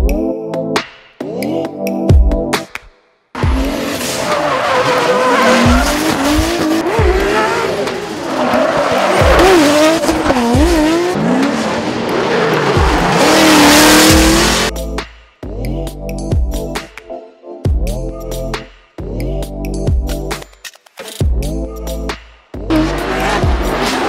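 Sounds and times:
engines revving hard: 3.4s - 14.7s, 22.7s - 24.0s
tyres squealing: 3.5s - 14.4s.

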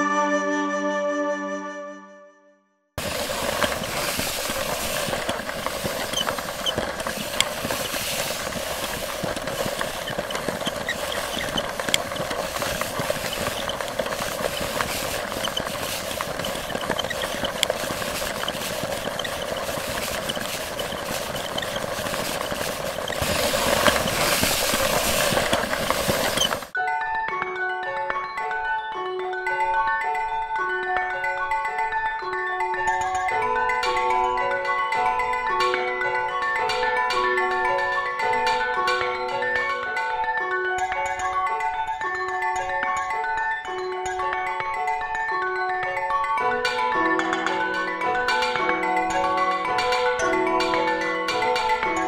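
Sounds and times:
crackling hiss: 3.0s - 26.8s.

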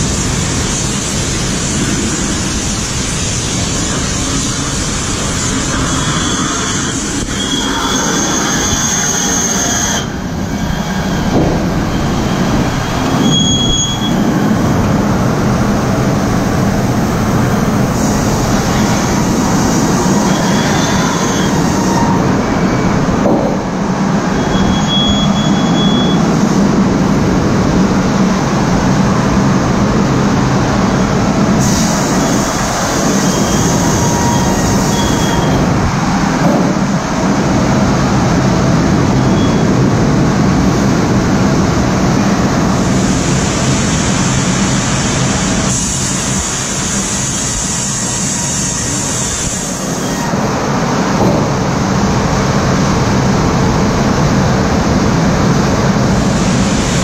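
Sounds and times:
sawmill machinery rumbling: 0.0s - 57.0s
high squeals: 5.3s - 14.8s, 17.9s - 23.2s, 24.2s - 26.4s, 31.7s - 35.8s, 39.1s - 39.8s.

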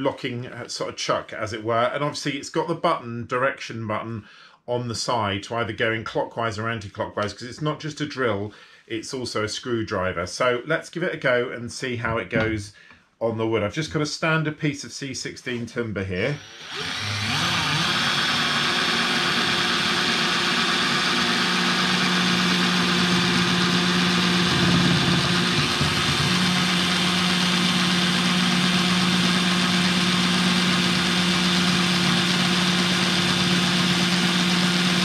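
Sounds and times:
drill boring through wood: 16.2s - 35.0s.

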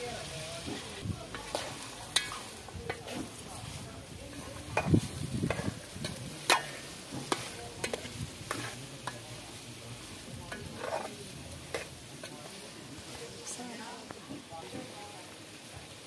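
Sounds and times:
curry sizzling: 0.0s - 16.0s
metal spoon scraping a pot: 4.4s - 9.2s, 10.5s - 12.4s.

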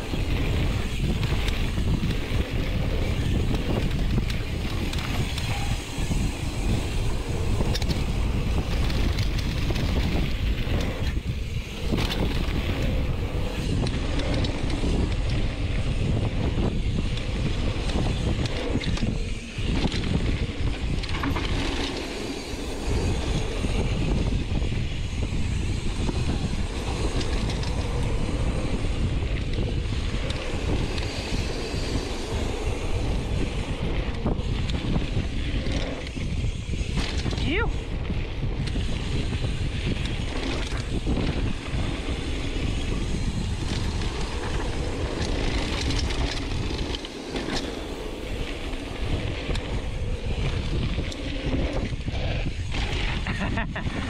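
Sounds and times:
wind buffeting microphone: 0.0s - 54.0s
tyres rumbling on dirt: 25.5s - 54.0s.

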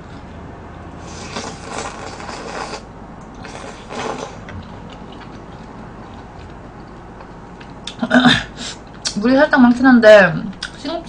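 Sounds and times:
slurping noodles: 1.0s - 4.6s.

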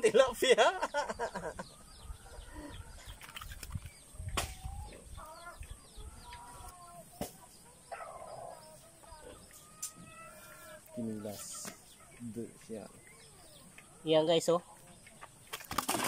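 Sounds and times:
chickens clucking: 0.0s - 16.0s
sharp slaps: 4.3s - 4.6s.

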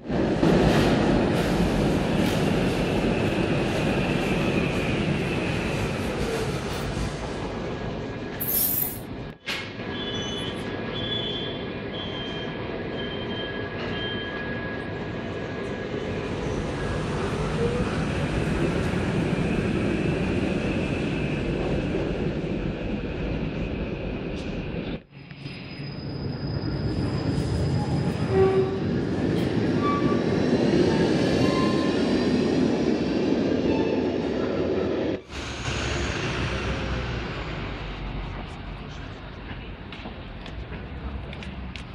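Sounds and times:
tram hum and rumble: 0.0s - 41.9s
tram wheel squeals: 9.8s - 15.2s, 25.1s - 32.5s, 33.5s - 37.6s.

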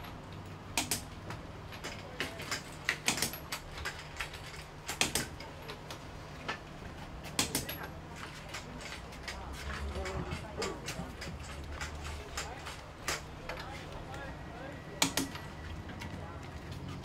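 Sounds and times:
sharp clicks and knocks: 0.0s - 14.2s, 15.0s - 17.0s.

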